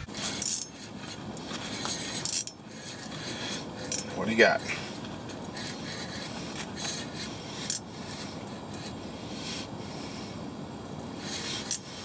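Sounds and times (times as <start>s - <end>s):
hands rustling and scraping gear: 0.0s - 9.0s.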